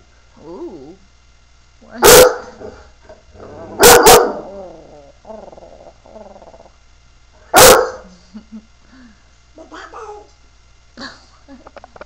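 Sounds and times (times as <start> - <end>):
dog barking: 2.0 - 2.7, 3.8 - 4.5, 7.5 - 8.1.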